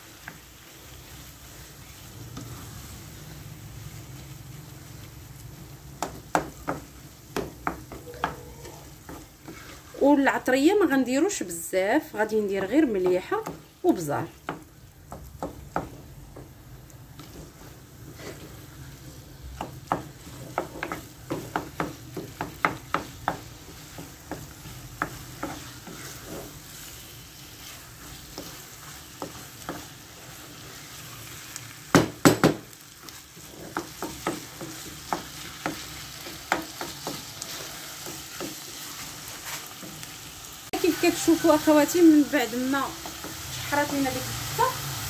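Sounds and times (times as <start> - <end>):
meat sizzling: 0.0 - 45.0
wooden spoon scraping and knocking: 6.0 - 10.0, 17.2 - 18.8, 19.5 - 26.9.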